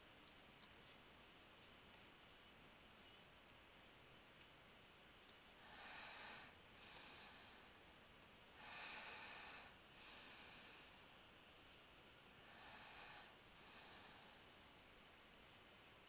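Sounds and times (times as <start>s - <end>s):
faint breathing into microphone: 5.6s - 11.2s, 12.3s - 15.6s.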